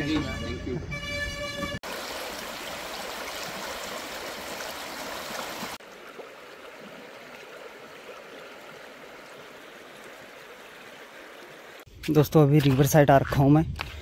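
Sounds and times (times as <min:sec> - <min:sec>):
flowing river water: 0:01.8 - 0:11.9.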